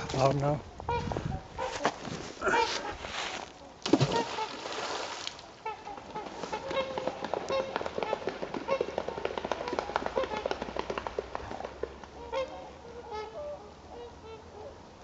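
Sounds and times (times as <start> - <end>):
swans honking: 5.6 - 9.1, 12.2 - 14.8.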